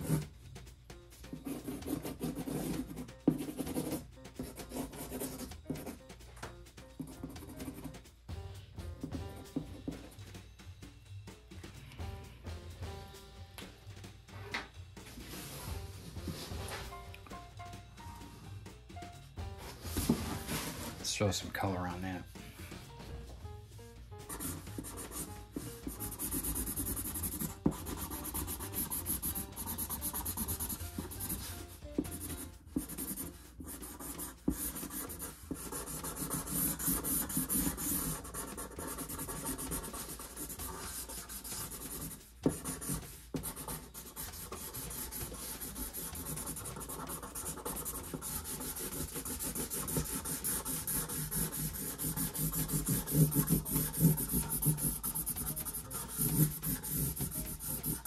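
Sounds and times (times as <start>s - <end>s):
marker scratching on cardboard: 0.0s - 0.4s, 1.1s - 8.0s, 19.6s - 21.0s, 24.2s - 58.0s.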